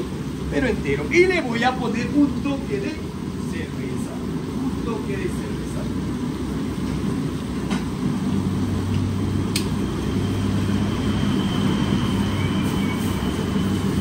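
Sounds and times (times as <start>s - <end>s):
gas burner rumbling: 0.0s - 14.0s
sharp click: 9.5s - 9.7s.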